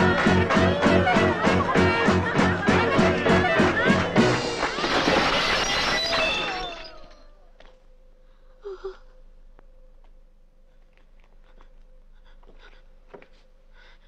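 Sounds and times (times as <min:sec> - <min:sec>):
loud music: 0:00.0 - 0:04.8
faint hum: 0:07.1 - 0:14.0.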